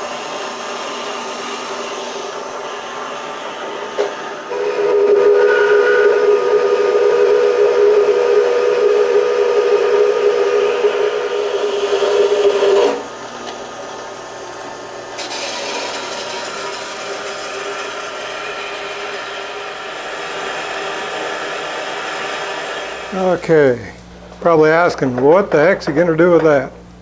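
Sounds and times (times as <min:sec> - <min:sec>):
bandsaw cutting metal pipe: 0:00.0 - 0:13.2, 0:15.2 - 0:23.6
loud steady ringing tone: 0:04.6 - 0:12.8.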